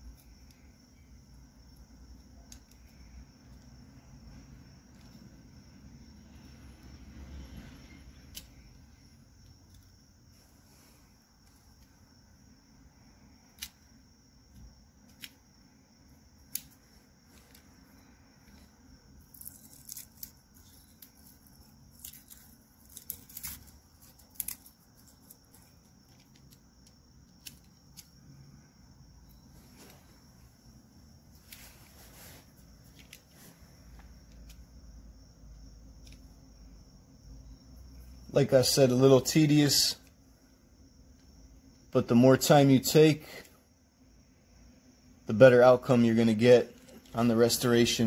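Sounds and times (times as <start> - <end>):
crickets chirring: 0.0 - 48.0
tape being peeled off: 19.2 - 26.7.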